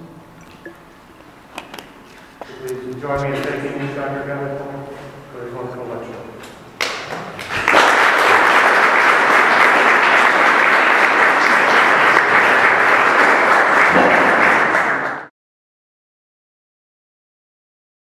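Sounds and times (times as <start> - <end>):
audience applauding: 6.8 - 15.3.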